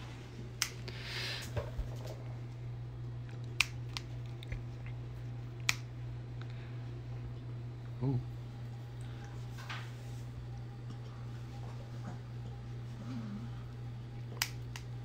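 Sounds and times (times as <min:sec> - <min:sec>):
low steady hum: 0:00.0 - 0:15.0
nail clipper clicks: 0:03.5 - 0:04.1, 0:05.6 - 0:05.9, 0:14.4 - 0:14.9.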